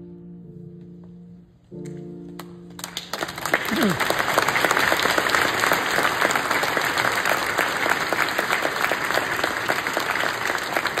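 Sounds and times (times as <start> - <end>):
audience applauding: 2.8 - 11.0.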